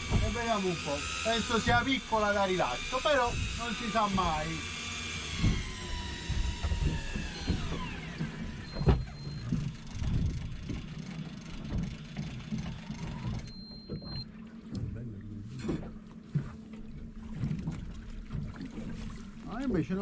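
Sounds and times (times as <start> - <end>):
fishing reel motor whining: 0.0 - 14.2.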